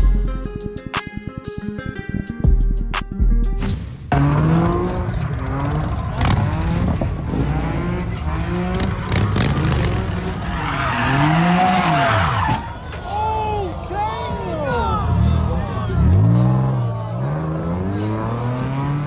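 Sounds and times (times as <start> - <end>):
motorcycle engine revving: 4.1 - 10.4
tyres skidding with a squeal: 4.9 - 13.4.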